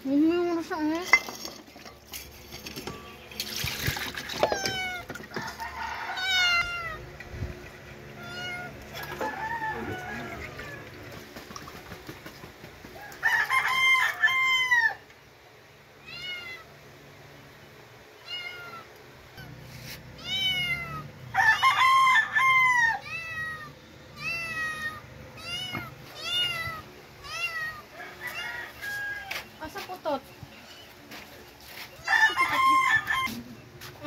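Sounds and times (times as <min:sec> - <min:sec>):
kittens meowing: 0:06.2 - 0:07.0, 0:08.1 - 0:08.9, 0:16.0 - 0:16.7, 0:18.2 - 0:19.6, 0:20.2 - 0:21.1, 0:23.0 - 0:28.4.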